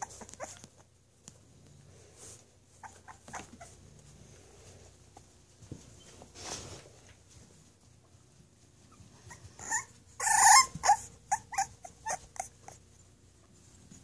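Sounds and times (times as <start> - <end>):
puppy crying and yipping: 0.0 - 0.9, 2.7 - 3.8, 8.9 - 12.8.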